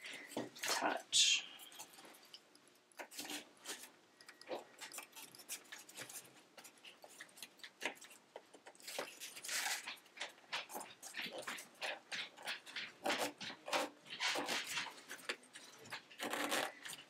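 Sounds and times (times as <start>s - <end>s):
reed clicking and rustling: 1.6s - 17.0s.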